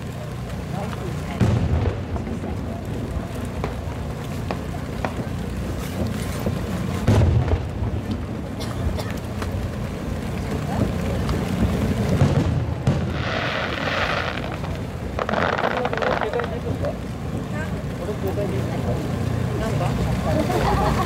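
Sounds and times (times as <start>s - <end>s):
firework hissing and crackling: 0.0s - 17.8s
firework boom: 1.4s - 3.8s, 7.0s - 8.6s, 11.6s - 16.6s.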